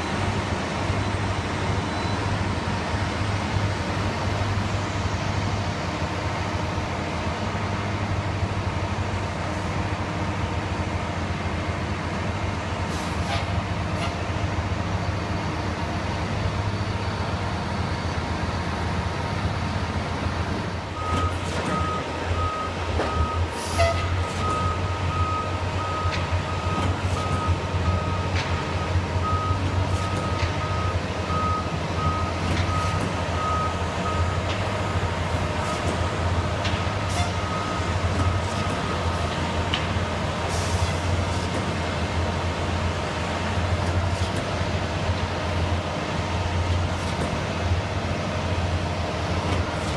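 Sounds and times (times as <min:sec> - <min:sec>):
truck engines running: 0:00.0 - 0:49.9
reversing beeper: 0:01.1 - 0:02.5, 0:20.9 - 0:35.0, 0:37.0 - 0:39.2.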